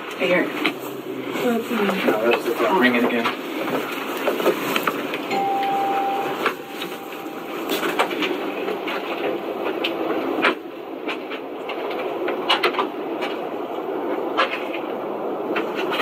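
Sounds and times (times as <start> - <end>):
steady background noise: 0.0 - 16.0
doorbell ringing: 5.3 - 9.6.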